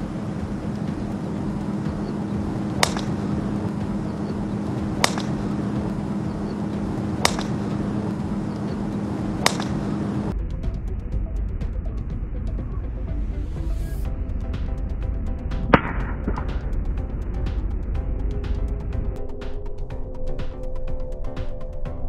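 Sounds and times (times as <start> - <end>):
steady low hum: 0.0 - 22.0
golf club striking ball: 0.3 - 10.3.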